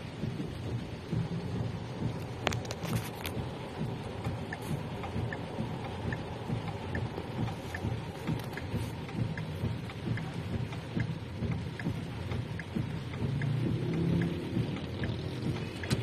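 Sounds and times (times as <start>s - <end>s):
hazard-light flasher ticking: 0.0s - 16.0s
low crackling rumble: 0.0s - 16.0s.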